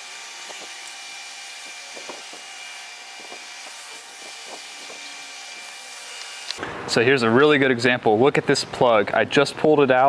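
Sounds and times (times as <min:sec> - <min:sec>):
workshop hiss: 0:00.0 - 0:06.6.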